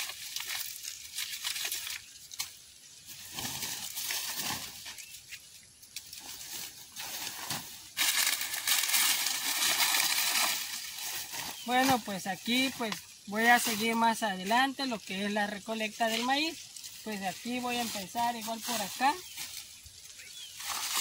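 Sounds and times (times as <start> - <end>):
dry corn husks crackling: 0.0 - 21.0
dry corn stalk rustling: 0.0 - 21.0
woven sack rustling: 3.0 - 5.3, 6.0 - 21.0.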